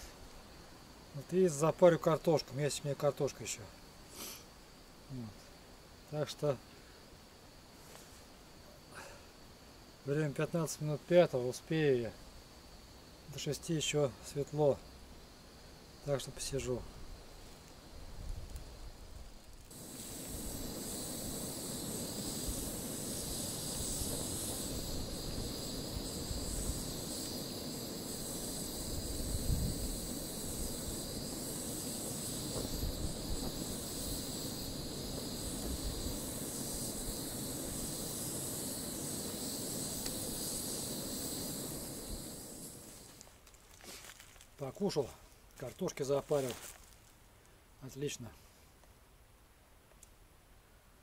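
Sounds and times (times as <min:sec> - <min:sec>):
gas stove hissing: 0:00.0 - 0:45.2
low burner roar: 0:19.7 - 0:43.2.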